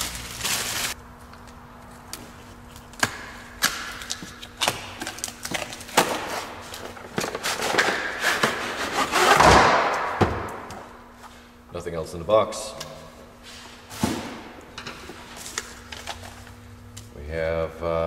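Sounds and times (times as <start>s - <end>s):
plastic wrap and cardboard rustling: 0.0s - 1.0s.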